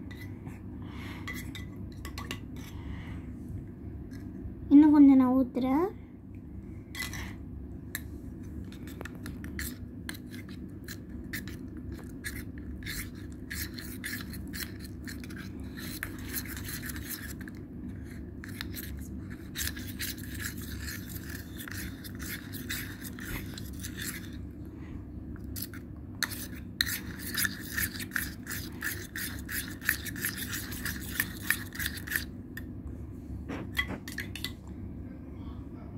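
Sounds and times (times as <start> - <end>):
steady low hum: 0.0 - 35.9
spoon scraping steel tumbler: 1.2 - 2.8, 8.6 - 24.4, 25.5 - 32.7, 33.7 - 34.6.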